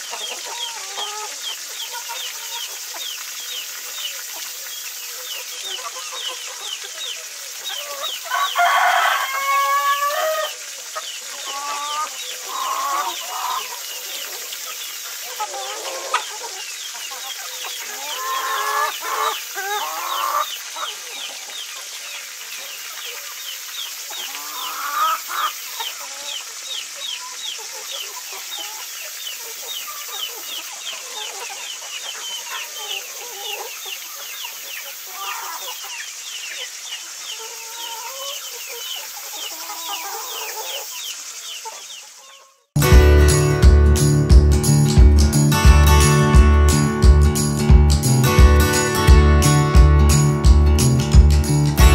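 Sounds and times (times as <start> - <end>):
chickens clucking: 0.0 - 51.9
steady hiss: 0.0 - 51.9
fast high chirping: 42.8 - 51.9.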